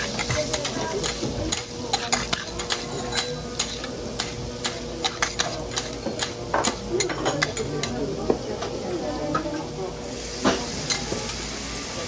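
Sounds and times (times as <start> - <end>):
oil sizzling: 0.0 - 6.4
spatulas clicking on griddle: 0.0 - 7.9.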